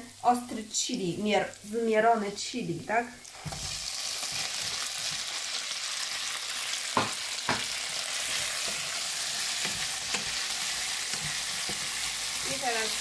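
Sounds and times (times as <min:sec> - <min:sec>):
meat sizzling in hot oil: 0:03.2 - 0:13.0.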